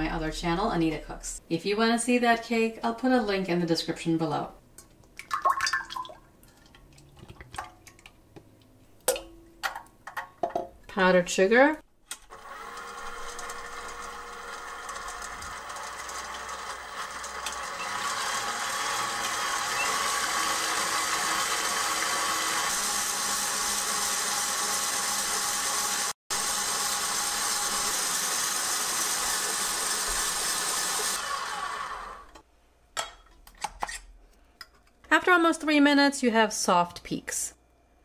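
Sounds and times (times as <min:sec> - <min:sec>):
stand mixer motor whine: 0:12.3 - 0:32.4.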